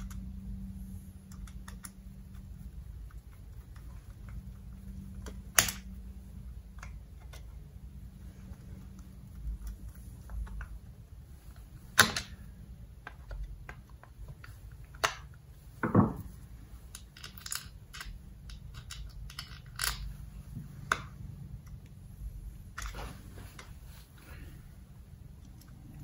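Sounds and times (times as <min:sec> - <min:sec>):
small metal parts clicking: 0:01.3 - 0:06.0, 0:16.8 - 0:20.3.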